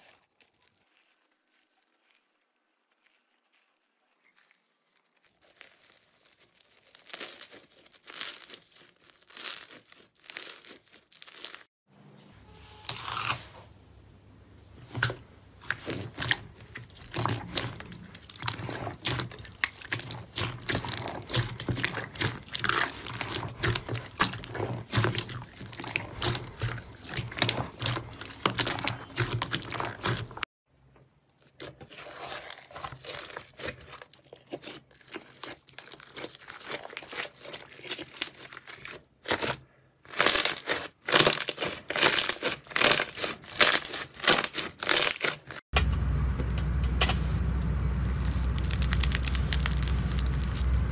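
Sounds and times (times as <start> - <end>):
slime crackling and popping: 0.0 - 11.7, 15.6 - 30.4, 31.5 - 45.6, 48.0 - 50.9
steady low hum: 45.8 - 50.9.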